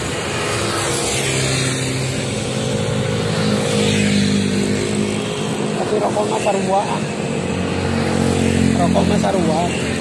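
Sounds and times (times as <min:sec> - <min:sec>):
motor scooters passing: 0:00.0 - 0:10.0.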